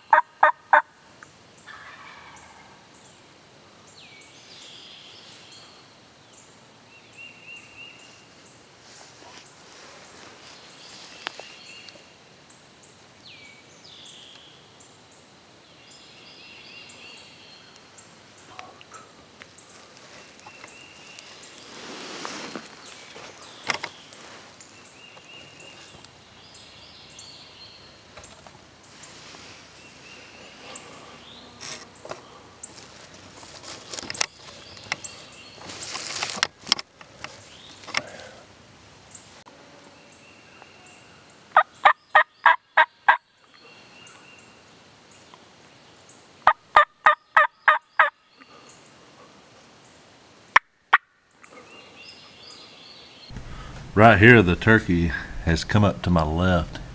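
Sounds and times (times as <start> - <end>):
songbirds chirping: 0.0 - 56.9
rustling brush: 8.0 - 11.8, 19.4 - 26.1, 28.3 - 38.0.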